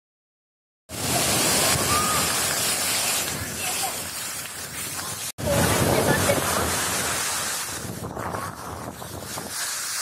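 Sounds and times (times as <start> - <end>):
waterfall rushing: 0.9 - 7.9
wind buffeting microphone: 0.9 - 10.0.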